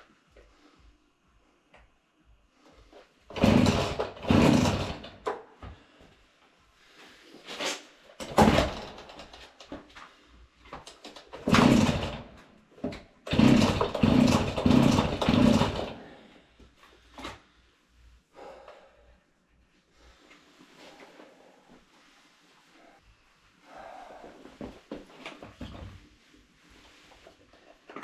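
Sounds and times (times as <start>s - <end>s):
chainsaw engine turning over: 3.3s - 5.3s, 8.3s - 9.3s, 11.2s - 12.4s, 13.3s - 16.0s
chainsaw starter cord pulls: 3.3s - 5.4s, 10.9s - 12.4s, 13.3s - 16.0s.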